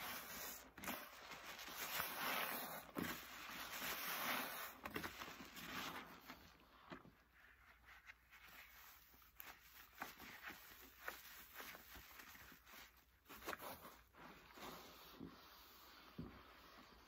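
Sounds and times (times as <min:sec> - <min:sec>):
sponges squelching in water: 0:00.0 - 0:16.0.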